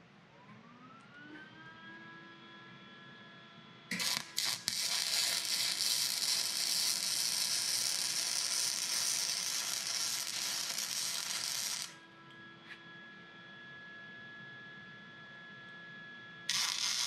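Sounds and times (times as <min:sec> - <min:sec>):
welder arc hissing crackle: 0:03.9 - 0:12.0, 0:16.5 - 0:17.0.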